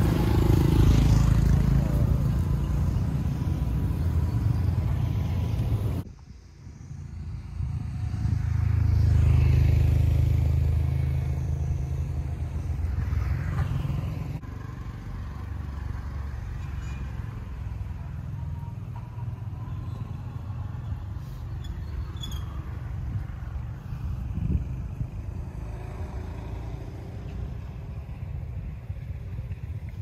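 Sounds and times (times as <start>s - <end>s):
vehicle engine hum: 0.0s - 30.0s.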